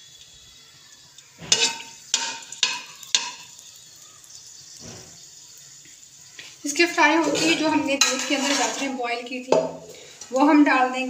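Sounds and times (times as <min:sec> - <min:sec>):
faint sizzle: 0:00.0 - 0:11.0
spoon scraping a pan: 0:01.4 - 0:03.6, 0:04.7 - 0:05.3, 0:07.0 - 0:10.5.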